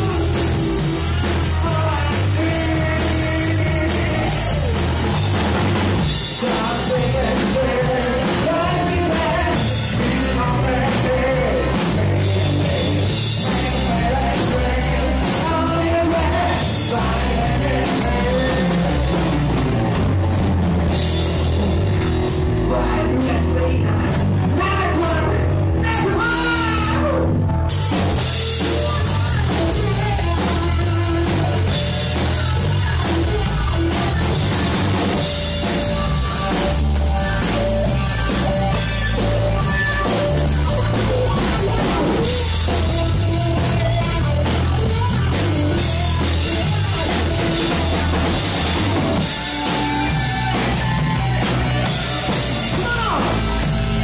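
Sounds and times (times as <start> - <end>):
person singing: 0.0 - 5.2, 6.1 - 19.5, 22.6 - 27.3, 28.3 - 34.3
drum kit: 0.0 - 54.0
live rock band playing: 0.0 - 54.0.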